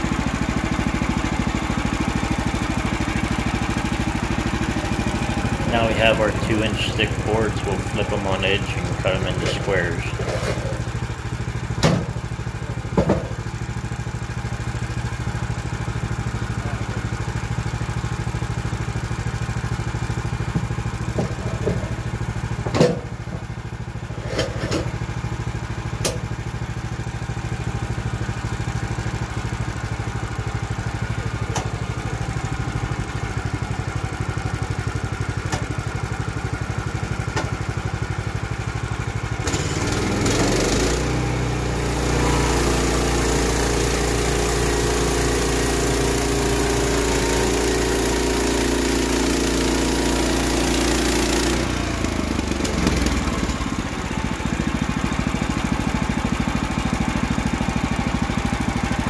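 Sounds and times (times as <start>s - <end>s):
sawmill gas engine running: 0.0s - 59.0s.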